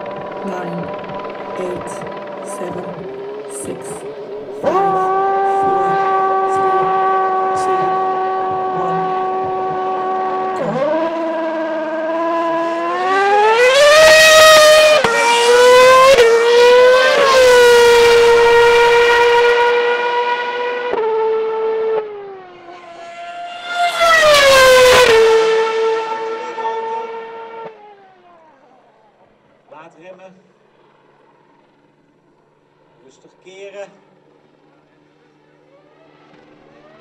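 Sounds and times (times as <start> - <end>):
racing car engine revving: 0.0 - 28.6.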